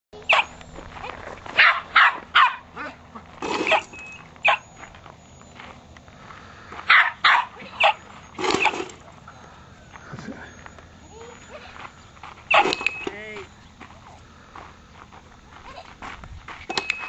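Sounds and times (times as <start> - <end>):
dog barking: 0.3 - 0.5, 1.6 - 3.0, 3.7 - 4.7, 6.9 - 8.0, 12.5 - 12.7.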